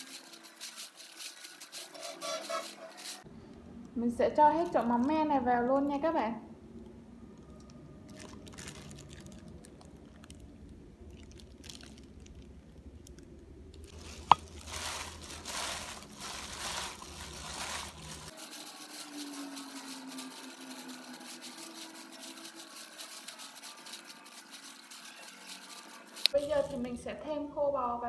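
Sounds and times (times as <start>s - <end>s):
wet rustling and crunching salad: 0.0s - 3.3s, 8.1s - 13.2s, 13.9s - 26.9s.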